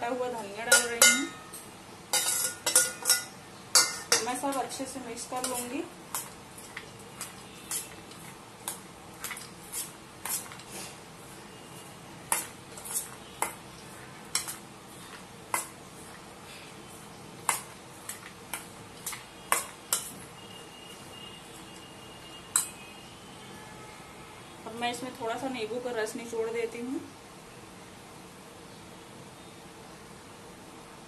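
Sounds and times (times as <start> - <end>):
metal spoon clinking on bowl: 0.7 - 4.7, 5.4 - 6.4, 14.3 - 14.6, 17.5 - 20.2, 22.5 - 22.8.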